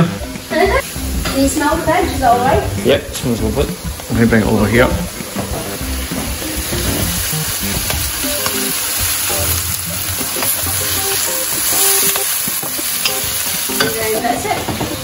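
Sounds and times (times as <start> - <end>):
vegetables sizzling in a wok: 0.0 - 15.0
wooden spatula scraping wok: 4.7 - 15.0.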